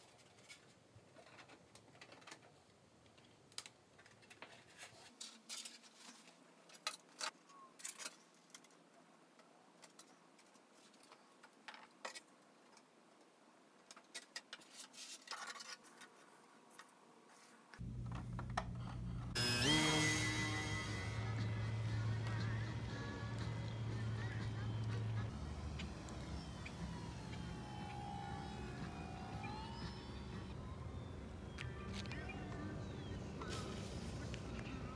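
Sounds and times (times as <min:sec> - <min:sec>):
plastic parts clicking and tapping: 0:01.2 - 0:15.8
steady low sound: 0:17.8 - 0:34.9
music: 0:19.4 - 0:34.9.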